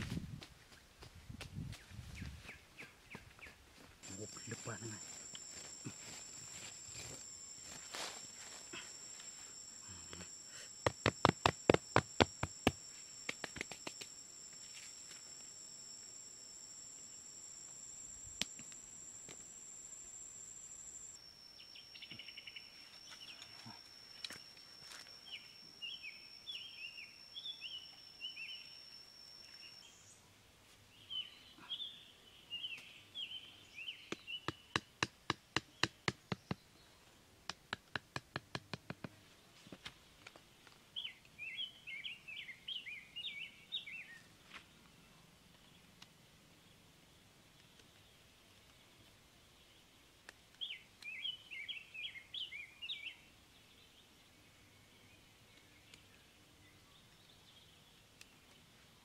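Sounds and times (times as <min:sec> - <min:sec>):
high insect whine: 0:04.0 - 0:30.2.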